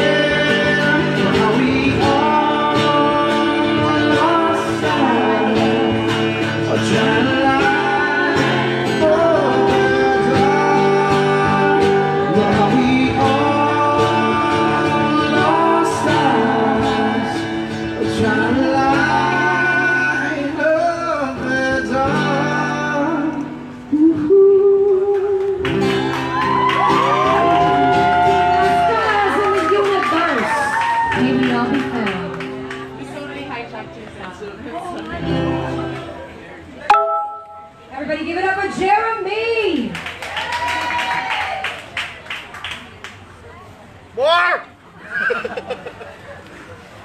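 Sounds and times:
acoustic guitar strumming: 0.0 - 23.9, 36.9 - 37.9
man singing: 0.0 - 25.6.

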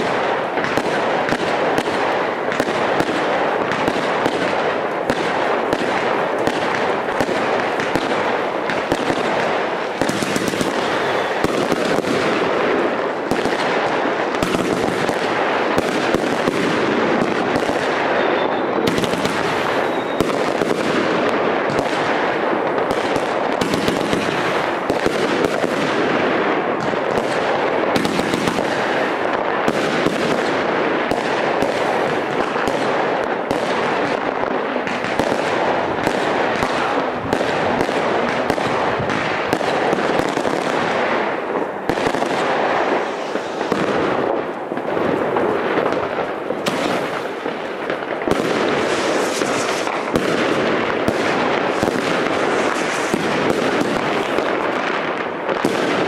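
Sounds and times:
fireworks crackling and popping: 0.0 - 56.0.

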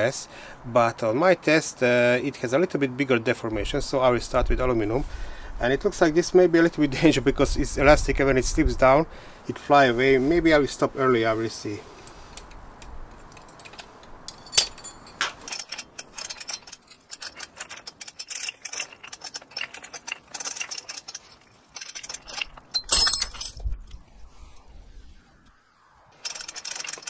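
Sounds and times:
metal chain clinking: 13.2 - 23.8, 26.2 - 27.0.

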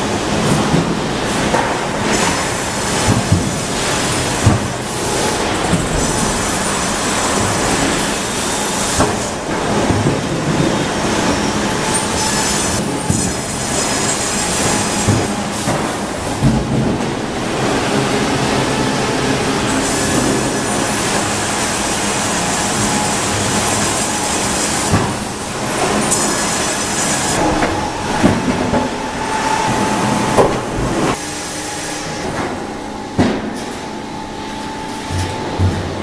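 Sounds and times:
sharp knocks and clanks: 0.4 - 17.2
high machine whine: 1.9 - 33.1
band saw cutting log: 2.0 - 10.0.

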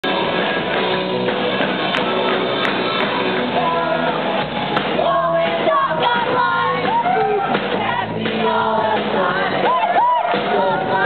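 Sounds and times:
amplified electric guitars: 0.0 - 11.0
person singing: 3.5 - 4.4, 5.0 - 11.0.

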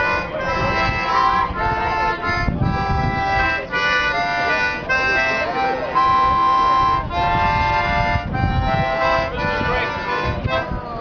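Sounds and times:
free-reed instrument playing chords: 0.0 - 11.0.

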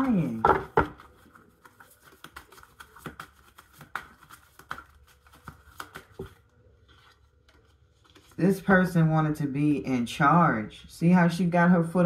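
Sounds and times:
cards clicking and tapping: 0.0 - 6.5.

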